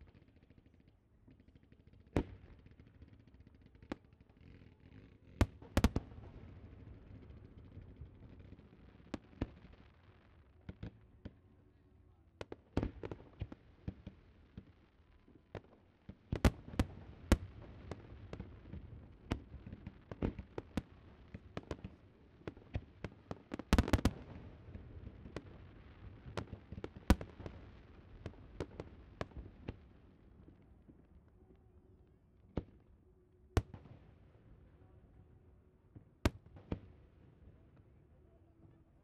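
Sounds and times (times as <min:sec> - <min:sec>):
fireworks bangs and pops: 0:00.0 - 0:11.4, 0:12.4 - 0:31.2, 0:33.6 - 0:34.1, 0:35.9 - 0:37.1.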